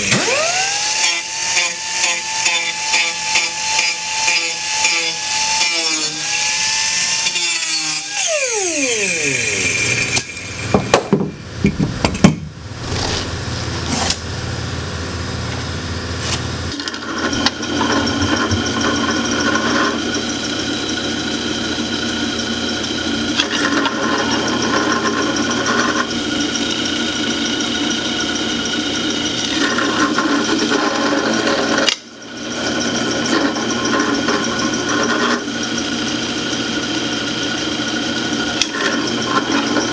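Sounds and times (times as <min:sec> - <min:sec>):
angle grinder whining: 0:00.0 - 0:11.9, 0:16.2 - 0:39.9
drill press humming: 0:00.0 - 0:12.1, 0:16.1 - 0:39.9.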